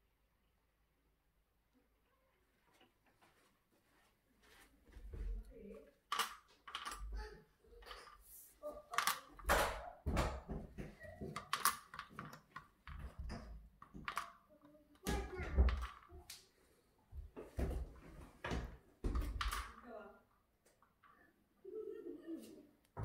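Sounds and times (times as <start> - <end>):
footsteps: 2.6 - 5.8.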